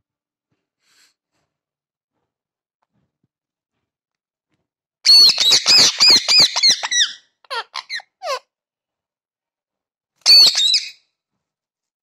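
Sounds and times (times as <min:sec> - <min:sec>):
parakeet screeching: 0:05.1 - 0:08.4, 0:10.2 - 0:11.0.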